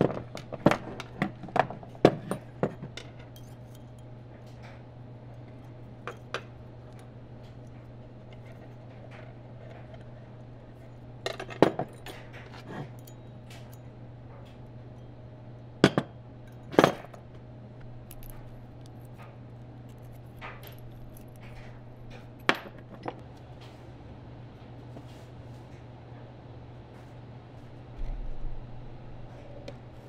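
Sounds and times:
metal parts clinking: 2.1 - 4.1, 18.0 - 19.2, 19.9 - 23.2.

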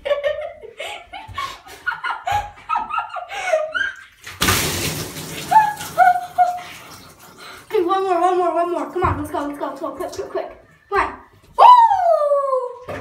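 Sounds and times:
water splashing from bucket: 4.1 - 10.5.

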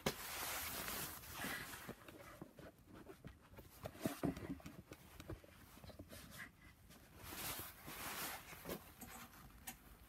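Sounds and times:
handling taps and rubbing: 1.7 - 6.4.

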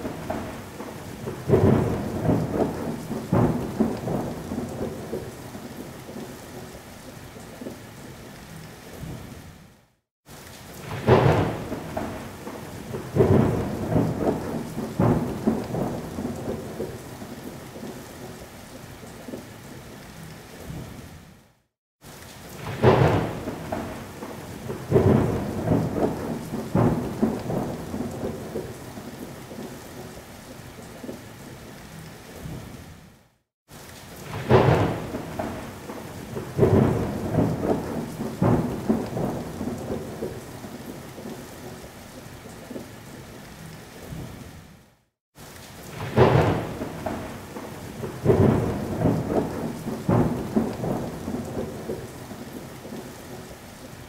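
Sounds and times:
thunder cracks and rumbles: 0.0 - 5.3, 10.8 - 17.0, 22.6 - 28.8, 34.2 - 40.5, 45.9 - 52.1
steady rain: 0.0 - 54.0.

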